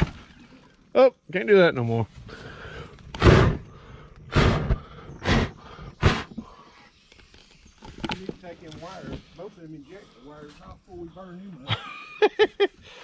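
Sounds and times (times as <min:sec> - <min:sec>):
hard puffs of breath: 0:02.2 - 0:07.0.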